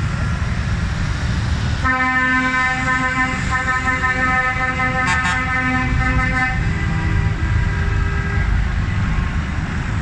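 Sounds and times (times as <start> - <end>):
tractor engines rumbling: 0.0 - 10.0
tractor horn blasts: 1.8 - 6.6.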